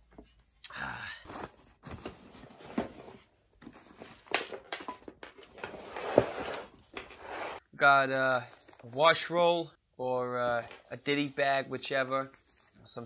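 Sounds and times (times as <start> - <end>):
cloth and strap rustling: 8.3 - 9.3, 10.5 - 13.0.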